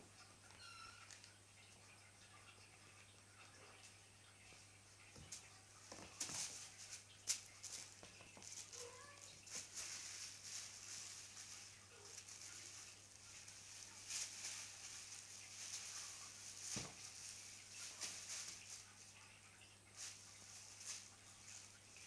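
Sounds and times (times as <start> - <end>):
plastic bag crinkling: 5.9 - 22.0.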